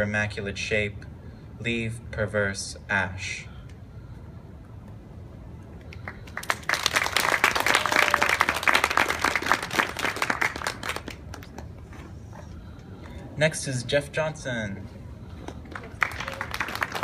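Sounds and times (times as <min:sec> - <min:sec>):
audience applauding: 0:06.0 - 0:11.7, 0:15.6 - 0:17.0.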